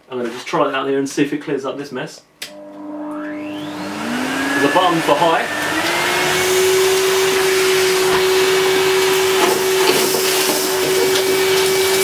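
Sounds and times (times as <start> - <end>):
vacuum cleaner running: 2.5 - 12.0.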